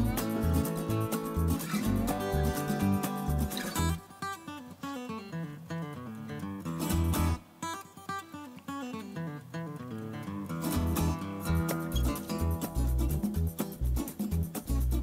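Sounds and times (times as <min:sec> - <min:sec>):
bass line: 0:00.0 - 0:04.0, 0:10.8 - 0:15.0
plucked acoustic guitar: 0:00.0 - 0:15.0.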